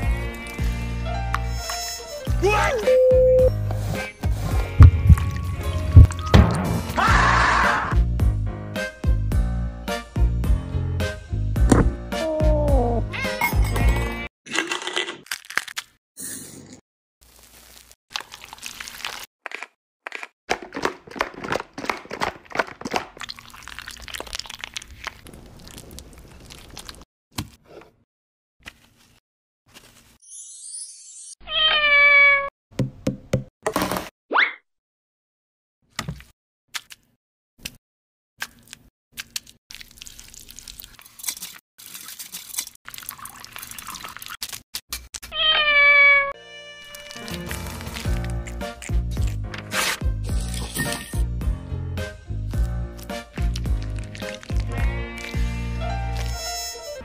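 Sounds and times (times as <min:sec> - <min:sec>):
cat meowing: 0:12.2 - 0:13.4, 0:31.4 - 0:32.5, 0:45.3 - 0:46.4
shaved ice crackling rustle: 0:17.2 - 0:19.3, 0:47.0 - 0:48.6, 0:53.7 - 0:54.8
plastic bottle crinkling: 0:17.2 - 0:27.0, 0:46.9 - 0:50.6, 0:53.0 - 0:55.4, 0:56.1 - 0:56.6.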